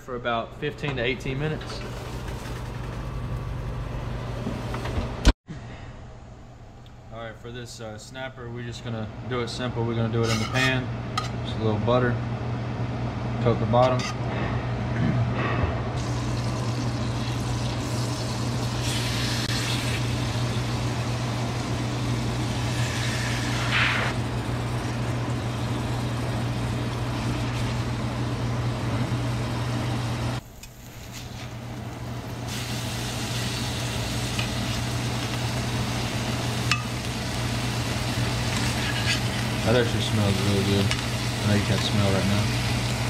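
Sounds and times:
steady low hum: 0:00.0 - 0:43.0
butter sizzling in a frying pan: 0:32.5 - 0:43.0.

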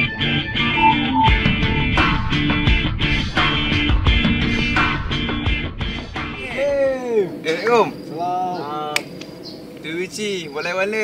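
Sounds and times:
strummed guitar chords: 0:00.0 - 0:04.2
steady drum beat: 0:01.3 - 0:06.4.

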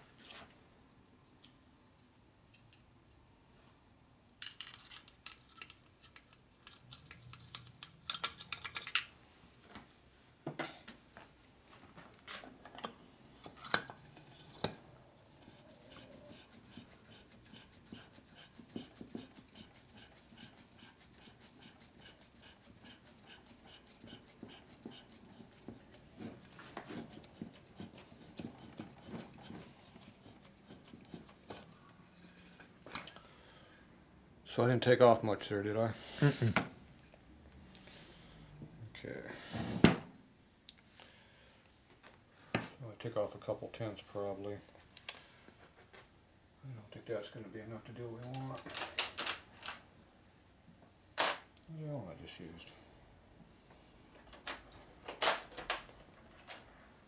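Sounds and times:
hand reamer scraping metal: 0:15.4 - 0:26.0.

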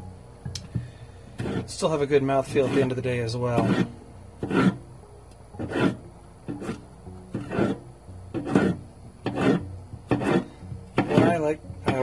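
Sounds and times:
knife slicing bell pepper: 0:08.4 - 0:11.4.

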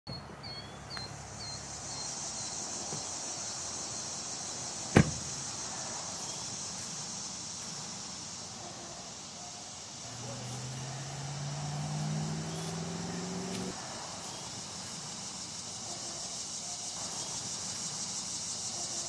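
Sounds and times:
bird chirps: 0:00.1 - 0:02.7
high insect drone: 0:00.4 - 0:19.0
car door slamming: 0:04.9 - 0:05.4.

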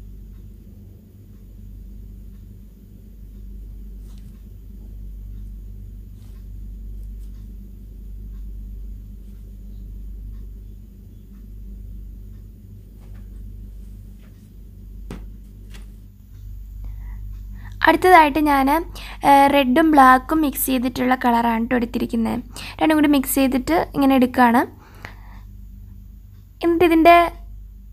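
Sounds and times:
steady low hum: 0:00.0 - 0:27.9
faint clicks and taps: 0:12.3 - 0:16.5.

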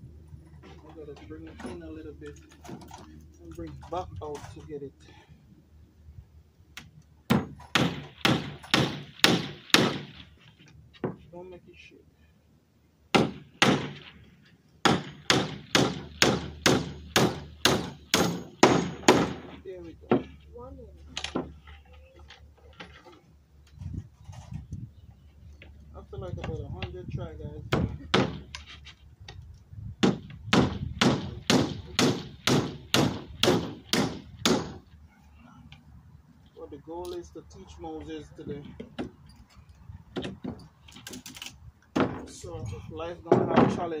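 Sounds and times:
hammer driving nail into wood: 0:07.3 - 0:10.0, 0:14.8 - 0:19.5, 0:30.0 - 0:34.8.

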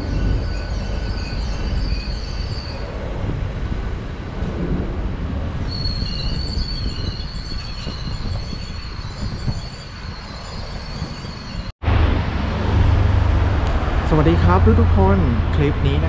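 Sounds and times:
high wheel squeal: 0:00.0 - 0:03.1, 0:05.6 - 0:11.7.

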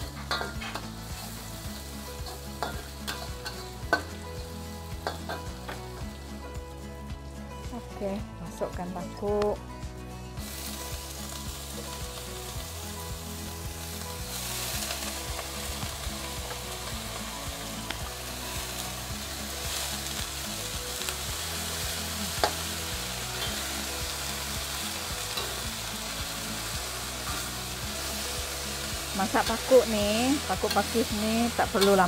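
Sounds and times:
vegetables sizzling in hot oil: 0:00.0 - 0:07.0, 0:10.4 - 0:32.0
spatula clinking against wok: 0:00.2 - 0:00.9, 0:02.2 - 0:04.1, 0:05.0 - 0:05.8.

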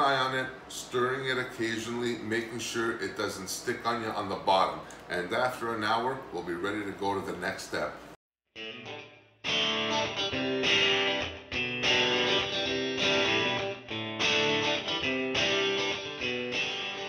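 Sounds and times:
guitar chords: 0:08.6 - 0:17.0.

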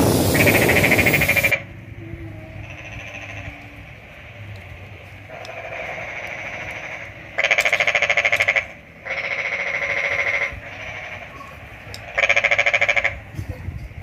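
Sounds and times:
animals trilling: 0:00.0 - 0:01.6, 0:05.3 - 0:13.2.

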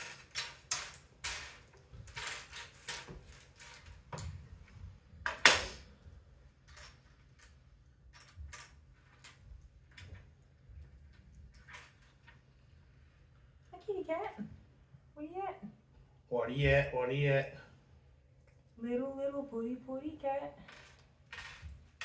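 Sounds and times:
plastic pieces clicking and clattering: 0:00.0 - 0:04.3.

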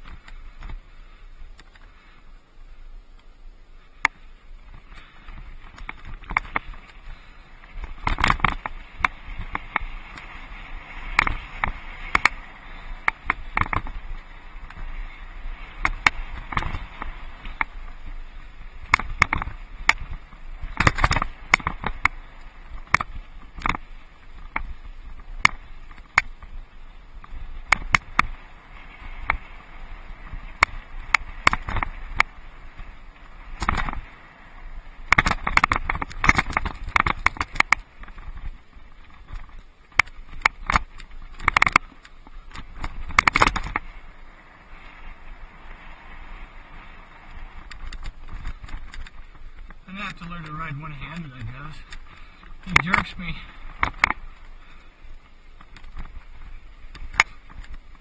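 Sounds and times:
steady rushing hiss: 0:00.0 - 0:58.0
bike rattling over rocks: 0:04.0 - 0:58.0.

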